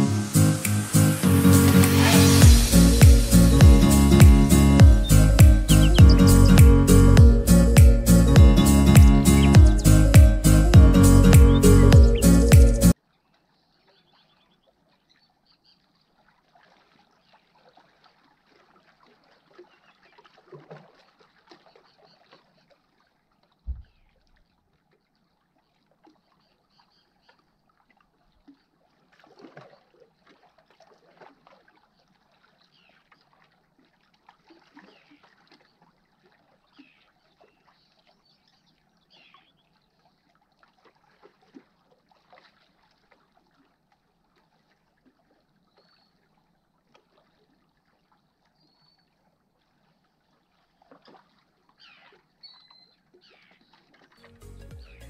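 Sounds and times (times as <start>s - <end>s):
low thump: 2.4s - 12.1s, 23.7s - 24.0s
small waves lapping against rocks: 15.8s - 54.2s.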